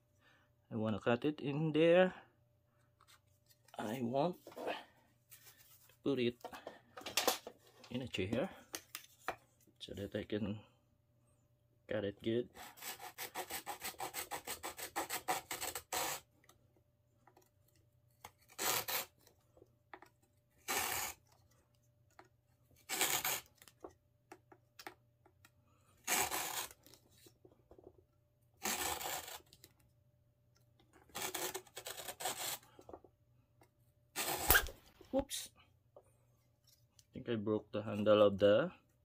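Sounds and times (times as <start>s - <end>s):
small hand saw cutting: 12.5s - 16.3s, 18.4s - 19.1s, 20.6s - 21.2s, 22.8s - 23.5s, 26.0s - 26.8s, 28.6s - 29.5s, 31.1s - 32.7s, 34.2s - 34.8s.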